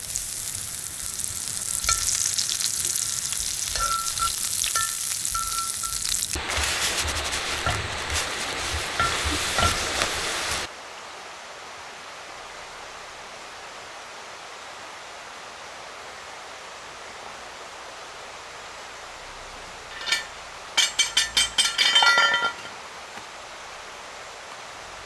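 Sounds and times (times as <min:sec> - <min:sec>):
meat sizzling in a frying pan: 0:00.0 - 0:10.7
mountain stream rushing: 0:00.0 - 0:25.0
utensils clicking against pan: 0:01.7 - 0:06.7, 0:07.4 - 0:10.7, 0:19.9 - 0:22.2.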